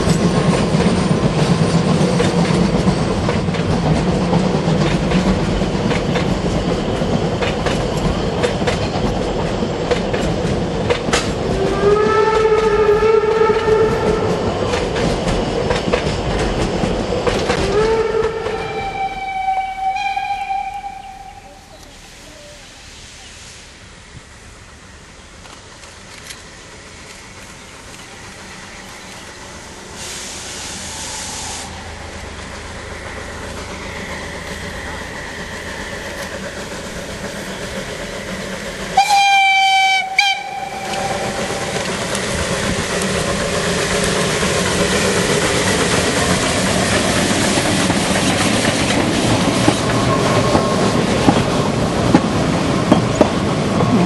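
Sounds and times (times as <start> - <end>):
train wheels clicking over rail joints: 0.0 - 18.7, 25.0 - 54.0
steam locomotive chugging: 0.0 - 54.0
steam whistle blast: 11.6 - 14.5, 17.6 - 21.7, 39.0 - 41.7.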